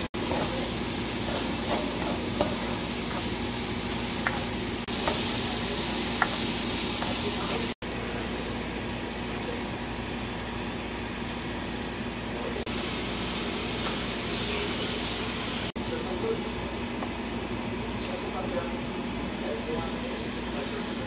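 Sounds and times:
onion sizzling in hot oil: 0:00.0 - 0:15.7.

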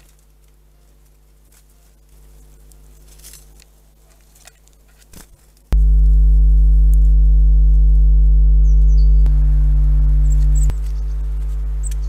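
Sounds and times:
steady low hum: 0:05.7 - 0:12.0
short high bird chirps: 0:08.6 - 0:09.2.

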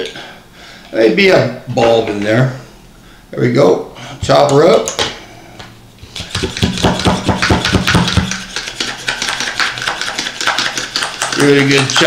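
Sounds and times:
plunger chopper clacking: 0:06.2 - 0:12.0.

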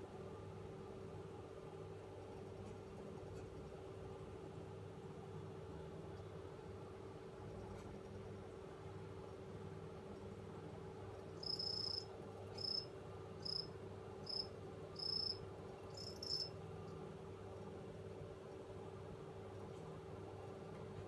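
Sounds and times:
faint low hum: 0:00.0 - 0:21.0
cricket chirping: 0:11.1 - 0:16.6.

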